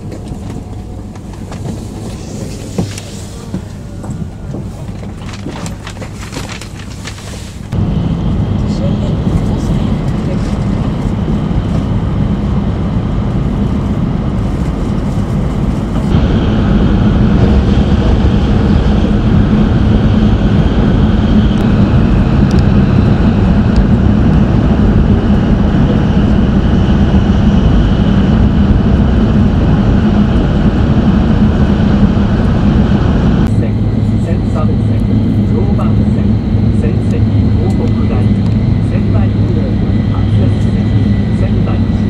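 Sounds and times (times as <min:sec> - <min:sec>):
train cabin rushing noise: 0:00.0 - 0:07.8
low hum: 0:00.0 - 0:42.0.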